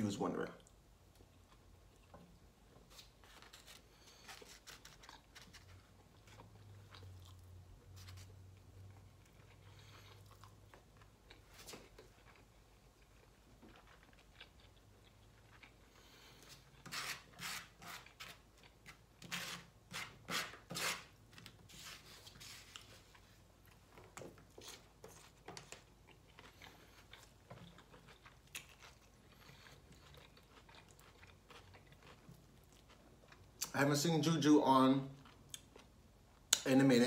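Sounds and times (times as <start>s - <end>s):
chewing: 4.4s - 16.8s, 22.7s - 33.7s.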